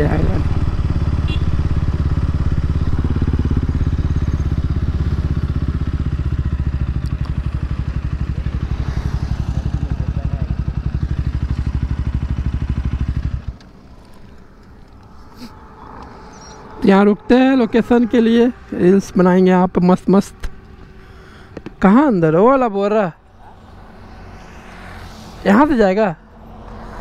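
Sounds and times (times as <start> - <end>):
motorbike engine pulsing: 0.0 - 19.0.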